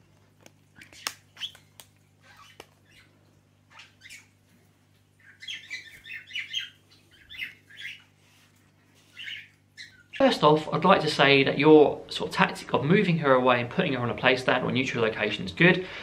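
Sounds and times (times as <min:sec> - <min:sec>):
cockatiel chirping: 0:00.8 - 0:04.4, 0:05.2 - 0:08.2, 0:09.0 - 0:10.3.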